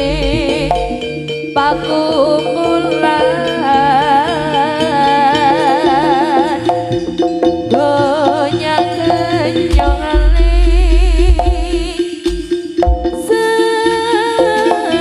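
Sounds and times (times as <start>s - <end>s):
drums: 0.0s - 2.1s, 5.2s - 15.0s
wavering melody: 0.0s - 15.0s.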